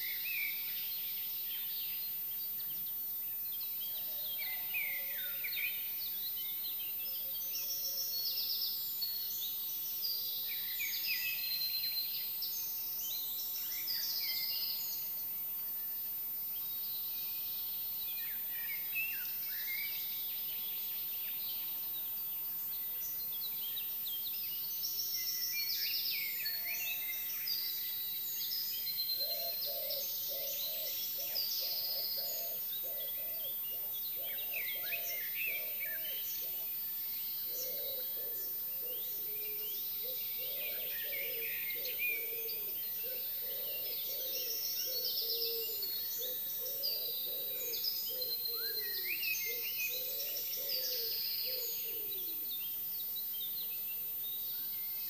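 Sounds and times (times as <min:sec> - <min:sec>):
songbirds singing: 0:00.0 - 0:55.0
low repeated bird call: 0:37.6 - 0:52.5.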